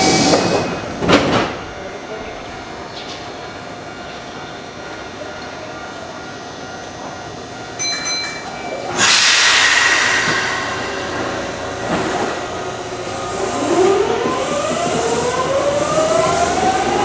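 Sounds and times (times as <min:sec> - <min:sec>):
electric train rushing: 0:00.0 - 0:01.8, 0:06.9 - 0:17.0.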